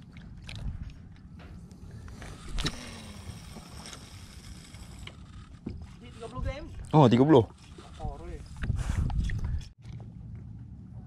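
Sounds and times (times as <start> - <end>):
water lapping: 0.0 - 8.0
wind rumble: 0.0 - 11.0.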